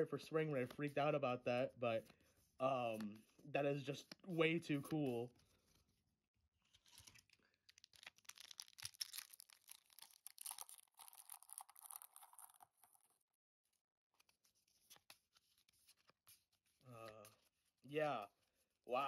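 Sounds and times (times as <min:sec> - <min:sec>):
foil wrapper crinkling: 0:06.8 - 0:13.2
foil wrapper tearing: 0:07.0 - 0:13.1.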